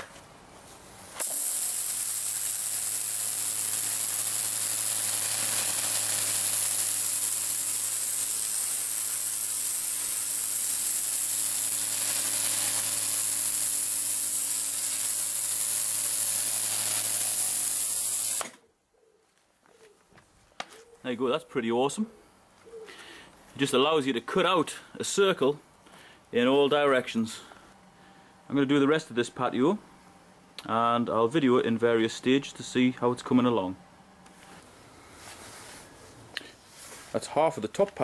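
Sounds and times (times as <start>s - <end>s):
pressure washer jet hissing on stone: 1.1s - 18.5s
pressure washer motor humming: 1.2s - 18.6s.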